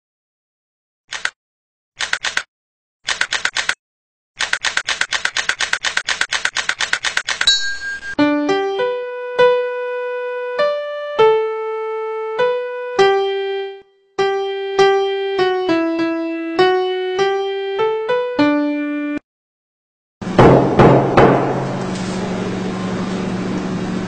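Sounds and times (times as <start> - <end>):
electric piano melody: 7.5 - 19.2.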